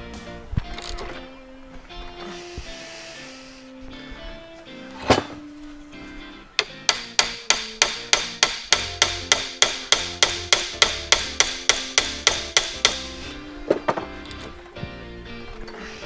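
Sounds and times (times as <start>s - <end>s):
hammer striking metal: 6.6s - 13.2s.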